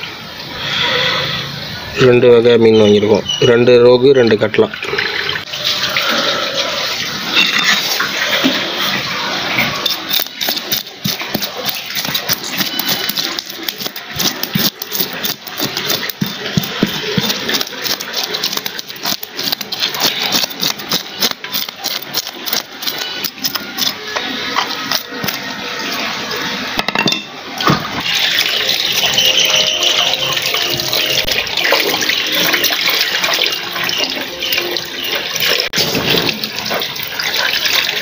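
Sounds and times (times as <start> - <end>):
cleaver scraping fish scales: 9.6 - 25.5
water splashing in tub: 28.0 - 38.0.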